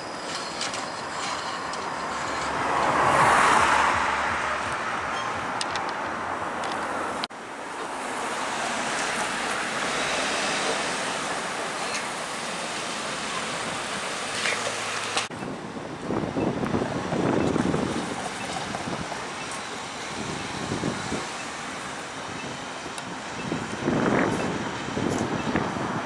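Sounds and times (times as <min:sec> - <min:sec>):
cars passing: 0:00.0 - 0:26.0
street traffic rushing: 0:00.0 - 0:26.0
streetcar passing: 0:00.0 - 0:26.0
wind on microphone: 0:15.3 - 0:26.0.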